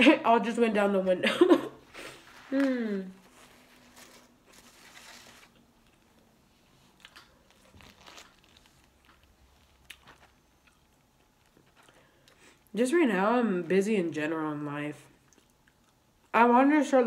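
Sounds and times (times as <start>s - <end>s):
paper wrapper rustling: 2.2s - 6.3s, 7.4s - 10.4s
chewing with soft crunches: 5.8s - 12.7s, 15.1s - 16.3s.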